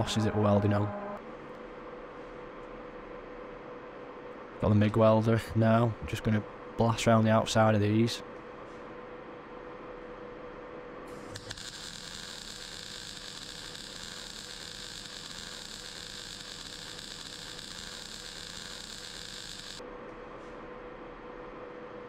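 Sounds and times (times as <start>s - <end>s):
welding arc crackling hiss: 11.1s - 19.8s.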